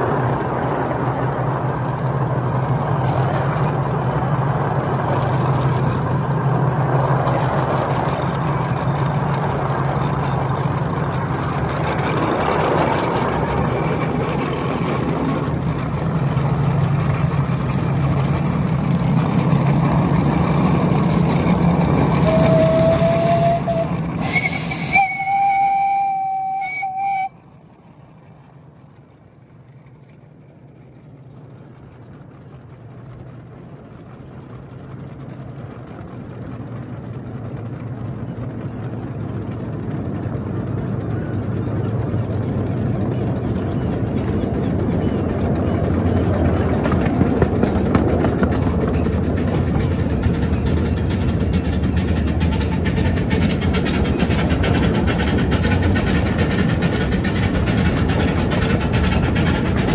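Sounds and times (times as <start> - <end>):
miniature train rumbling on rails: 0.0 - 59.9
steam hiss: 22.0 - 26.4
steam whistle: 22.1 - 27.4.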